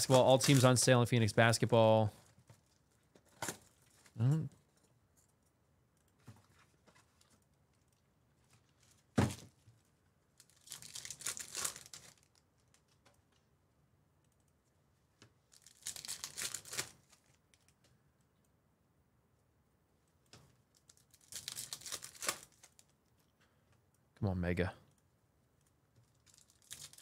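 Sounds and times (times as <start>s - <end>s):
wrappers torn and crinkled: 0.0s - 1.0s, 10.4s - 13.0s, 15.4s - 17.8s, 20.7s - 23.0s, 26.0s - 27.0s.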